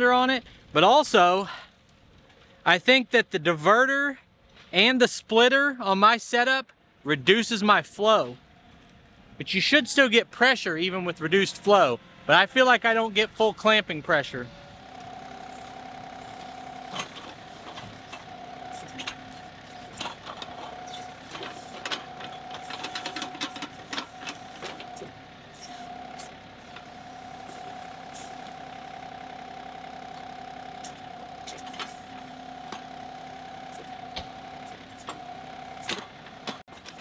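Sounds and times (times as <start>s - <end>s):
tractor diesel engine running: 7.9s - 37.0s
engine whine: 8.4s - 37.0s.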